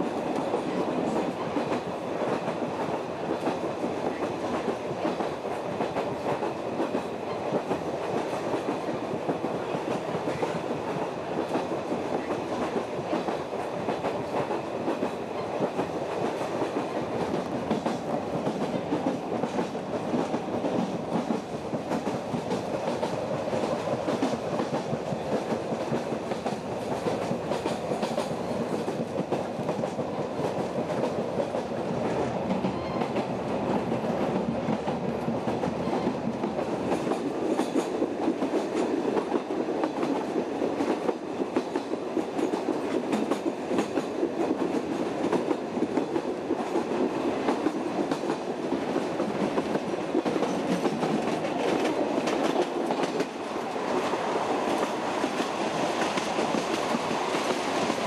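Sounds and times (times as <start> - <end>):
train wheels rolling and clicking: 0.0 - 58.0.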